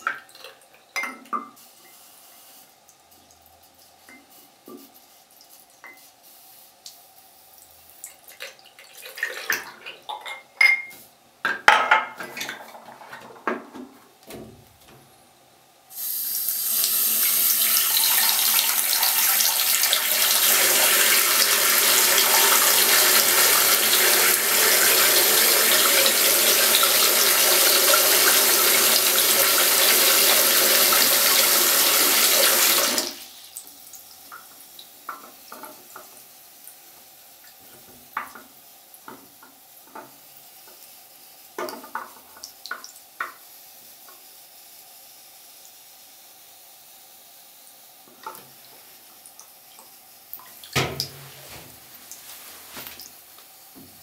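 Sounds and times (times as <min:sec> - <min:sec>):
tap water running into basin: 0:07.6 - 0:10.5, 0:16.4 - 0:40.9, 0:41.5 - 0:44.4, 0:47.7 - 0:54.0.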